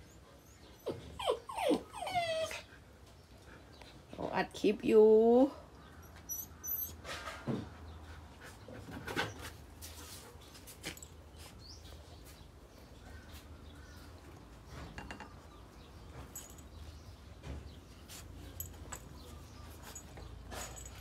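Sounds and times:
puppy squeaks: 0:00.8 - 0:02.6, 0:06.0 - 0:07.1.

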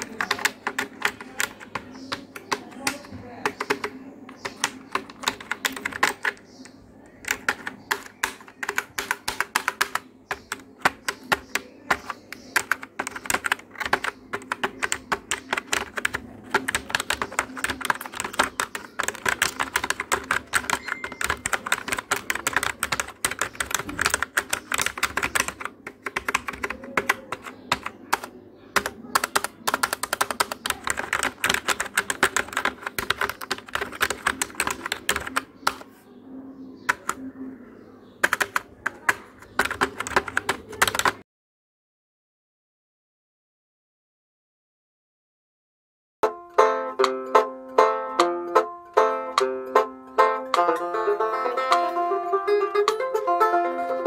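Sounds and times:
keyboard typing: 0:00.0 - 0:36.0, 0:36.7 - 0:41.2.

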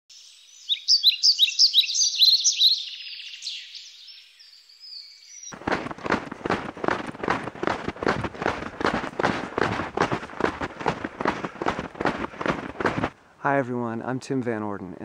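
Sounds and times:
birds chirping: 0:00.3 - 0:13.1
snowshoes crunching on snow: 0:05.6 - 0:13.2.

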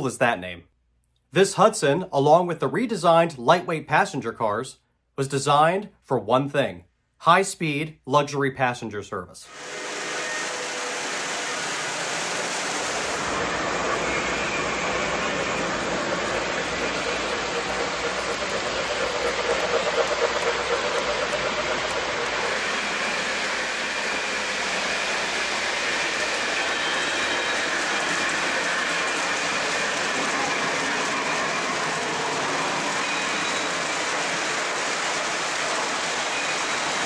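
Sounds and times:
model train wheels rattling on rails: 0:10.5 - 0:37.0.

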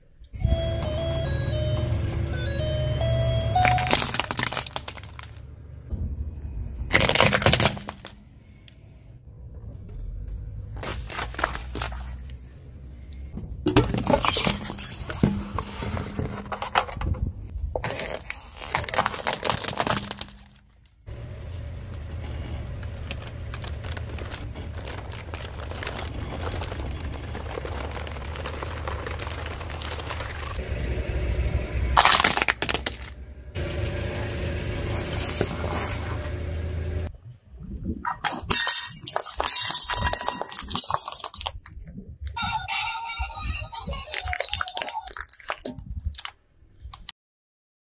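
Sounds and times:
plastic toys cracking under tyre: 0:03.6 - 0:05.5, 0:06.9 - 0:08.8, 0:10.7 - 0:12.4, 0:16.4 - 0:21.1, 0:22.8 - 0:30.6, 0:32.0 - 0:33.2, 0:43.9 - 0:47.1
steady low rumble: 0:05.2 - 0:07.0.

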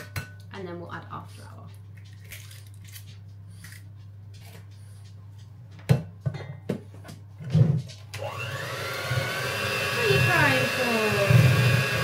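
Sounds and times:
electric hand whisk whining: 0:08.1 - 0:12.0.

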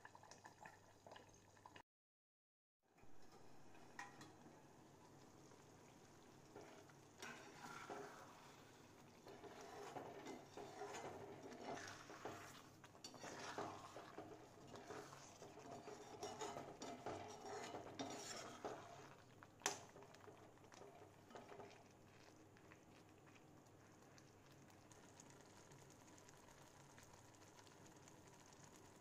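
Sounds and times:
faint steady hiss: 0:03.0 - 0:15.8
metal spatula scraping pan: 0:06.5 - 0:19.2.

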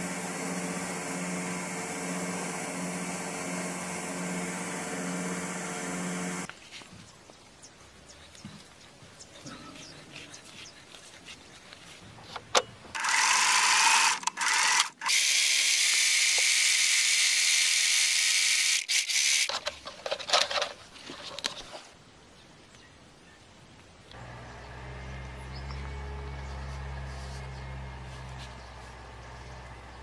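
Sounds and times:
electric sewing machine running: 0:00.0 - 0:06.5, 0:13.0 - 0:19.5.

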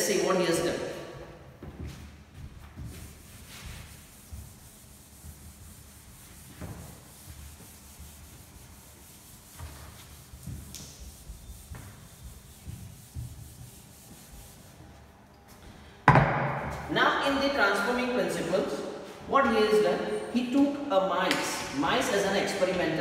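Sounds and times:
eraser rubbing chalkboard: 0:02.8 - 0:15.2.

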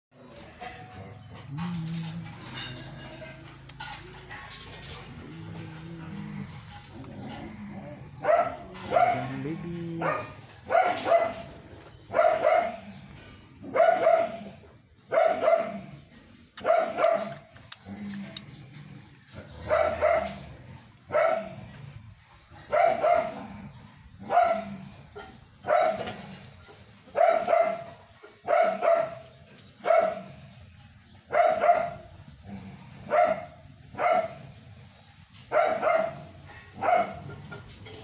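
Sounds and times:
dog barking: 0:08.2 - 0:12.9, 0:13.7 - 0:15.9, 0:16.6 - 0:17.4, 0:19.7 - 0:20.4, 0:21.1 - 0:21.6, 0:22.6 - 0:23.5, 0:24.2 - 0:26.2, 0:27.1 - 0:29.2, 0:29.8 - 0:30.4, 0:31.3 - 0:32.1, 0:33.1 - 0:34.4, 0:35.5 - 0:37.4.

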